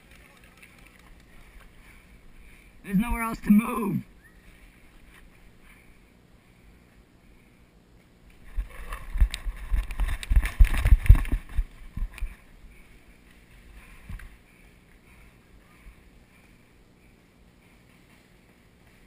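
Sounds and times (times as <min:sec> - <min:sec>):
running footsteps on gravel: 0:08.4 - 0:12.4
microphone rubbing and jolting: 0:08.4 - 0:12.5.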